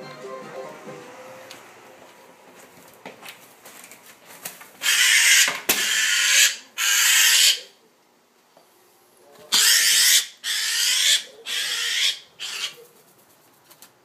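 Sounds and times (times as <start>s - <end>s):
magpie rattling chatter: 4.8s - 7.6s, 9.5s - 13.4s.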